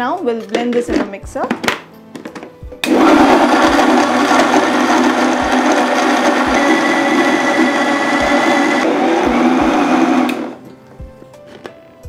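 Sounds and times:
blender motor running: 2.8 - 10.6.

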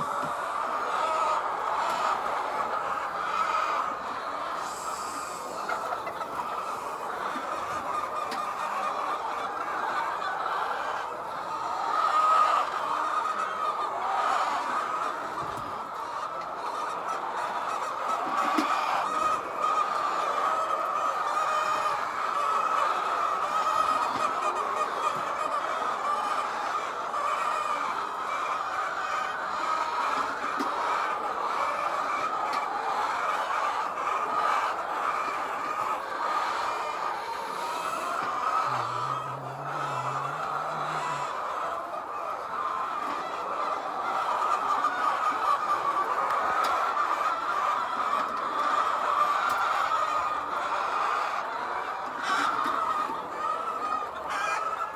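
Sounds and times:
hens clucking: 0.0 - 54.9.

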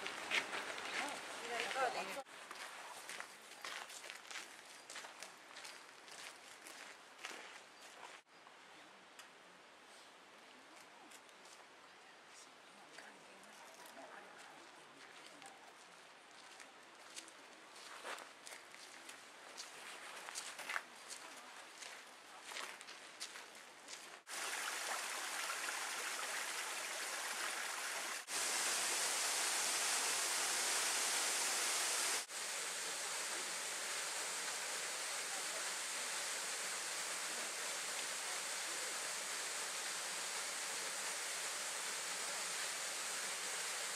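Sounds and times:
small waterfall rushing: 24.3 - 43.9.

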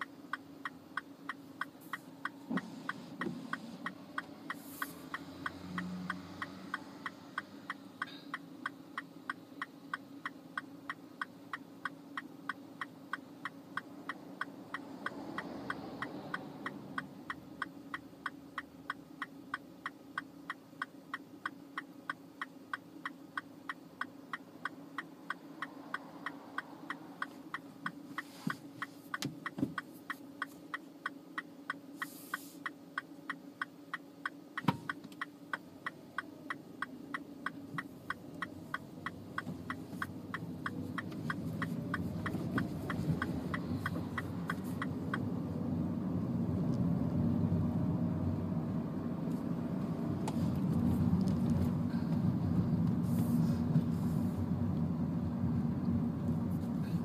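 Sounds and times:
car engine idling: 0.0 - 57.0
turn signal ticking: 0.0 - 57.0
car engine revving as it pulls away: 2.6 - 7.7.

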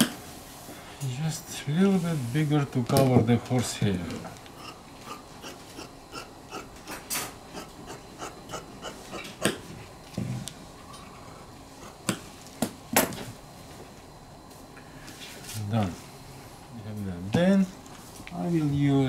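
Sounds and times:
shears snipping fabric: 4.6 - 9.7.

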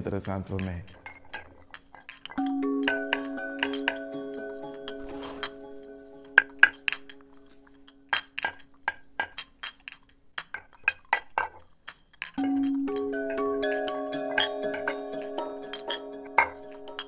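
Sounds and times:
glass clinking: 0.4 - 17.0
musical drone: 2.4 - 8.0, 12.4 - 17.0.

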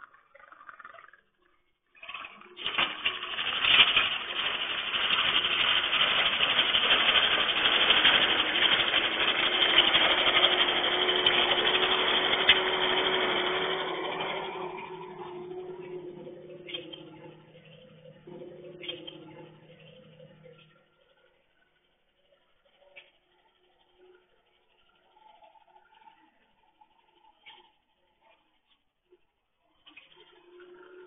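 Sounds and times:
tracks rolling: 2.0 - 26.2
diesel engine running: 2.7 - 21.0.

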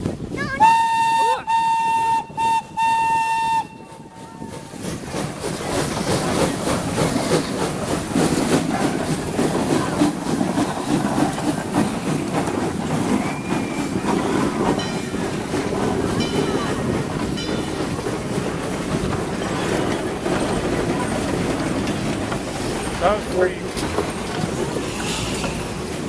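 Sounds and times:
steam locomotive working: 0.0 - 26.0
steam whistle: 0.6 - 3.8
wheels clacking over rail joints: 3.7 - 26.0
faint wheel squeal: 13.1 - 14.3.

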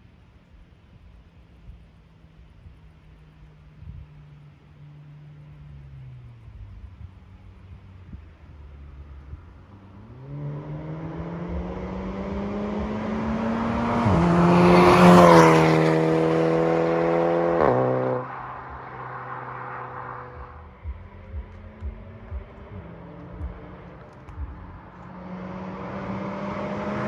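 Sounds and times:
car engine accelerating past: 8.8 - 27.0.

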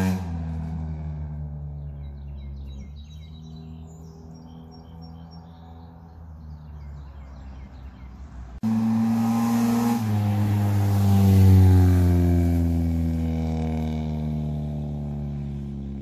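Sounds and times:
car exhaust passing by: 0.0 - 16.0
birds chirping: 1.4 - 8.6.

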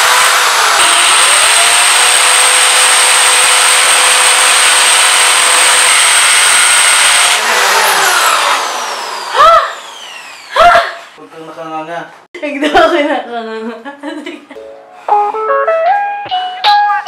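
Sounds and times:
electric drill boring into wall: 0.0 - 11.2.

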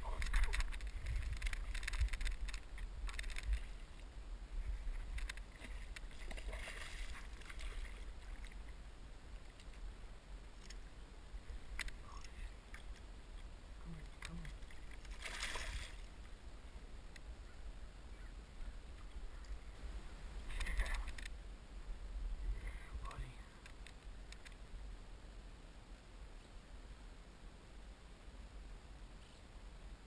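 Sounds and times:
water sloshing against hull: 4.6 - 8.8, 14.0 - 16.3
fish splashing at water surface: 15.0 - 16.1.

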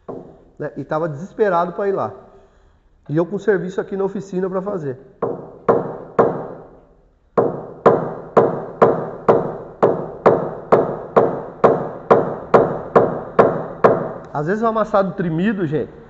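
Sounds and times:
hammer tapping on sheet metal: 0.0 - 0.4, 5.2 - 6.7, 7.4 - 14.3.

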